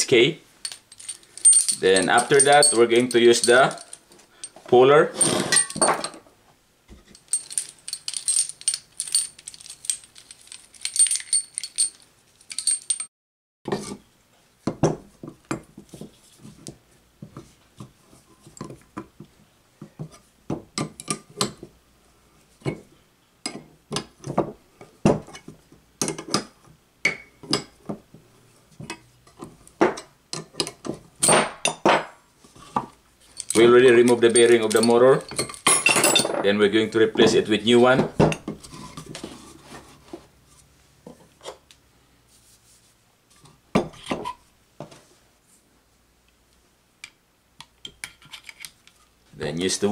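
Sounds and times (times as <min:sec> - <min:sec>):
metal puller jaws jangling: 0:00.6 - 0:04.0, 0:07.2 - 0:13.1, 0:33.3 - 0:36.3.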